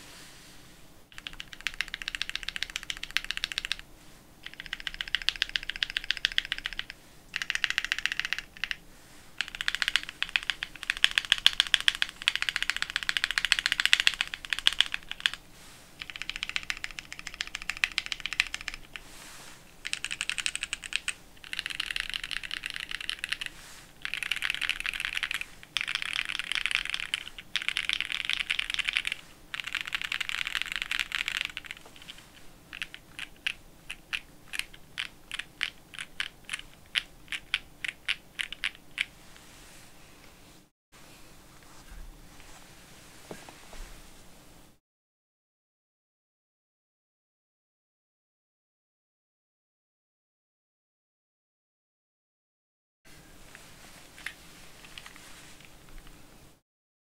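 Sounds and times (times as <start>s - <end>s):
mechanical keyboard typing: 1.1s - 3.8s, 4.4s - 8.8s, 9.4s - 15.4s, 16.0s - 19.0s, 19.8s - 39.1s.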